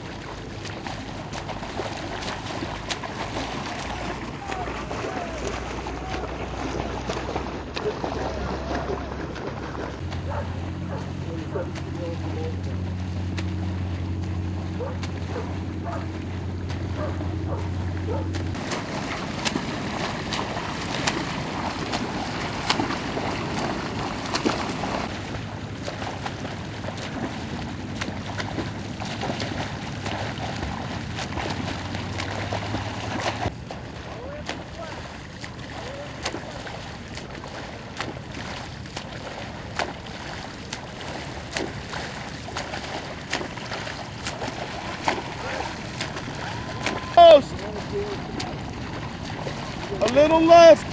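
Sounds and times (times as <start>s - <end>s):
water rushing: 0.0s - 50.9s
water slapping and splashing: 0.0s - 50.9s
wind: 0.0s - 50.9s.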